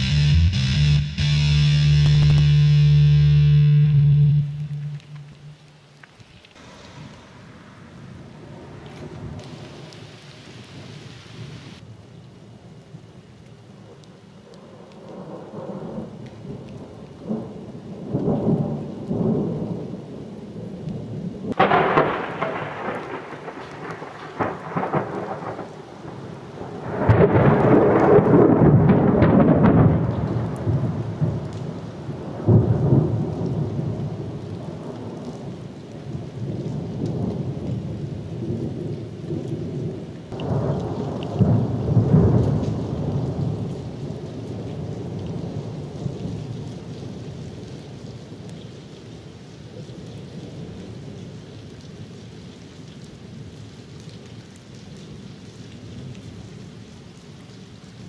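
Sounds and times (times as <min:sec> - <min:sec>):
steady rain: 0:00.0 - 0:58.0
thunder rumbling: 0:03.8 - 0:06.0, 0:06.6 - 0:11.8, 0:21.2 - 0:31.5, 0:39.8 - 0:46.0
thunder crack: 0:21.5 - 0:25.8, 0:26.8 - 0:31.0.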